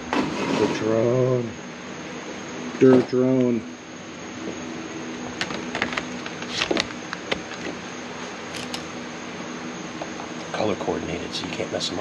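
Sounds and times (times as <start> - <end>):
steady low hum: 0.0 - 12.0
plastic handling clicks and knocks: 5.4 - 7.8.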